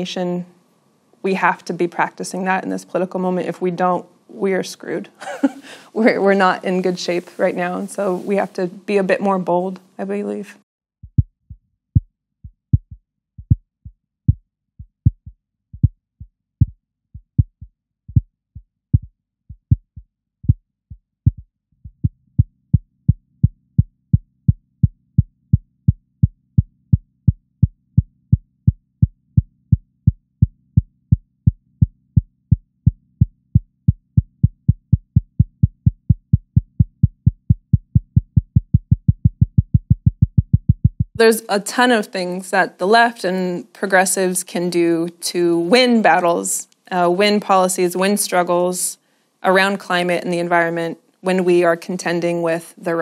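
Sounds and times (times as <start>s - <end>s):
low heartbeat-like thumps: 11.0s - 41.2s.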